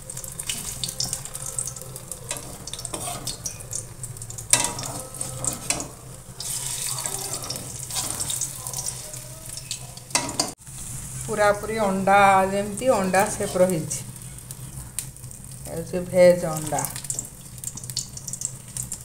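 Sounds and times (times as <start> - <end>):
food sizzling in oil: 0.0 - 19.0
wooden spatula scraping pan: 2.3 - 3.4, 4.7 - 9.1.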